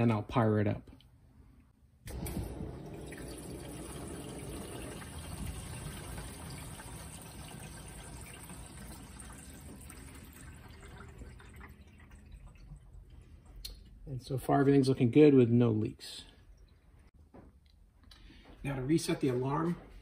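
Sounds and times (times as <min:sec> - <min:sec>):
water rushing through pipes: 0:02.1 - 0:13.7.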